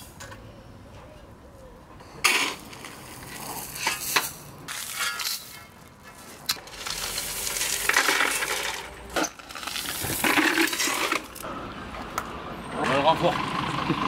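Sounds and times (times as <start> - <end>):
shovel scooping gravel: 2.1 - 11.5
stones rattling in metal wheelbarrow: 2.2 - 11.4.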